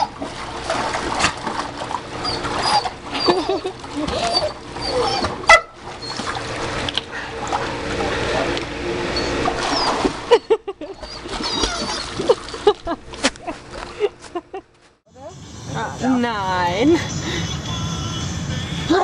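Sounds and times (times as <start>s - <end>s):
dog splashing in water: 0.0s - 8.4s, 9.4s - 10.4s, 11.2s - 12.7s.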